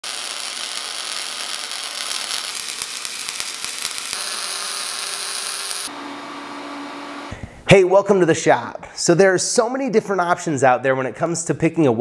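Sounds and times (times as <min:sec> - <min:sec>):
arc welding crackling and popping: 0:00.0 - 0:05.9
welding arc hissing: 0:00.0 - 0:06.0.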